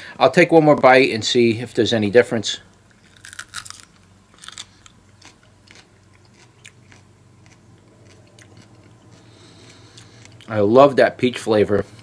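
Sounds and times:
person chewing with crunches: 2.9s - 10.7s.

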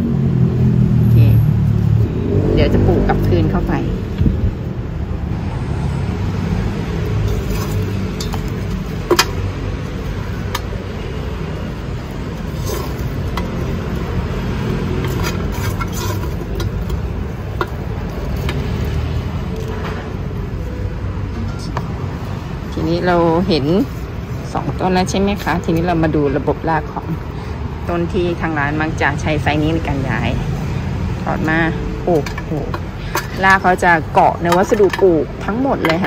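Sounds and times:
steady low rumble: 0.0s - 34.2s
husk chips and plastic pot handled: 7.2s - 9.6s, 14.7s - 19.7s.

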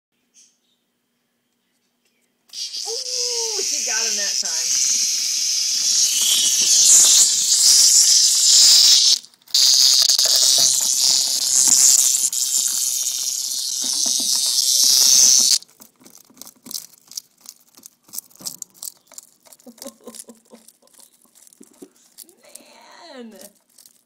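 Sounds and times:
cicada buzzing: 2.5s - 15.7s
hedgehog crunching cicada shell: 2.5s - 24.0s.

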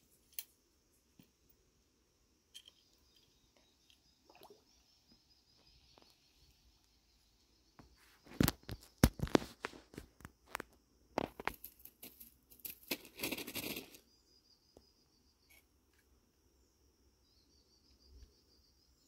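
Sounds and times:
crackling and rustling: 7.9s - 14.0s.

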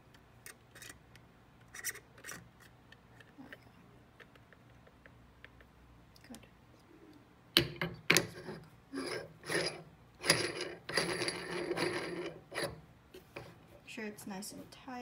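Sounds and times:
metal threads grating: 8.1s - 12.8s.

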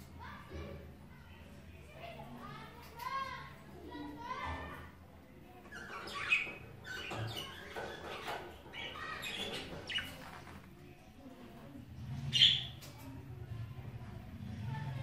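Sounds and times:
budgerigars chirping and chattering: 5.7s - 10.5s, 12.3s - 12.8s.

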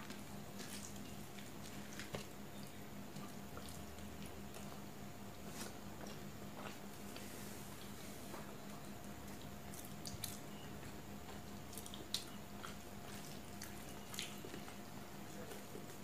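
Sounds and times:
faint steady hum: 0.0s - 16.0s
fingers squishing food: 8.6s - 16.0s
wet mouth chewing: 9.2s - 15.9s.

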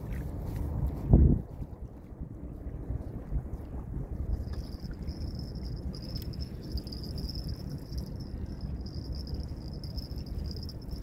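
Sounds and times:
wind rumble on microphone: 0.0s - 11.0s
high-pitched insect trill: 4.5s - 11.0s.

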